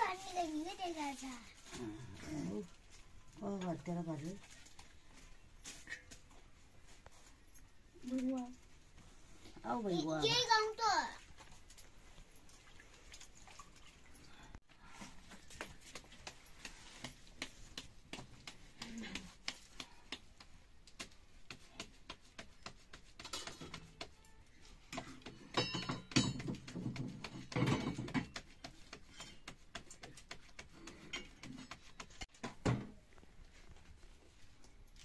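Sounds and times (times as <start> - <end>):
hands patting dough: 15.5 - 24.2.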